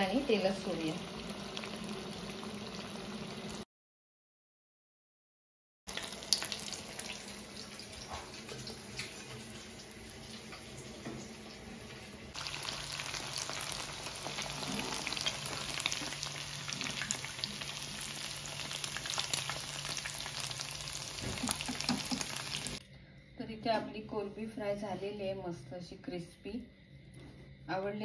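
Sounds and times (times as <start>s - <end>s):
prawns deep-frying in oil: 0.0s - 3.6s, 5.9s - 22.8s.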